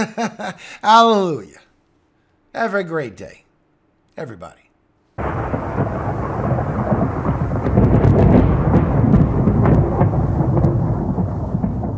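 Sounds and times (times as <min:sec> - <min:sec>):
rain: 0:05.2 - 0:11.9
sharp crackles: 0:05.2 - 0:11.9
thunder rumbling: 0:05.2 - 0:11.9.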